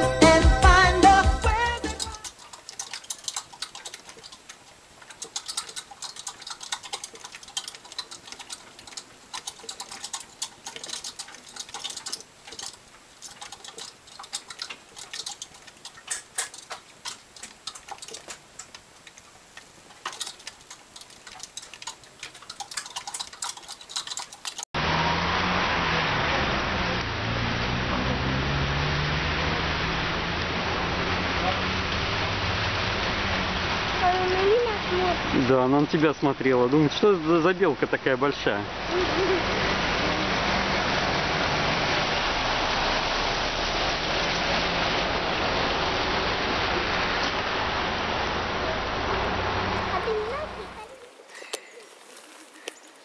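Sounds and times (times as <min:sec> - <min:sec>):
exercise wheel clattering: 0:00.6 - 0:24.8, 0:49.6 - 0:53.0.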